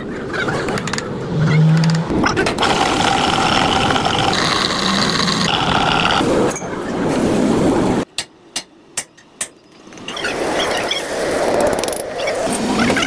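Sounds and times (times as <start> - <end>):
electric drill boring into steel: 2.6 - 6.2.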